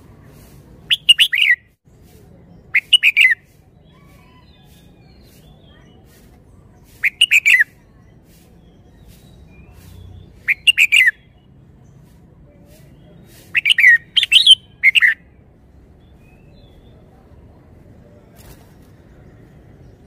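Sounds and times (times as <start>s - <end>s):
bird singing fluty notes: 7.0s - 11.6s, 13.0s - 15.4s.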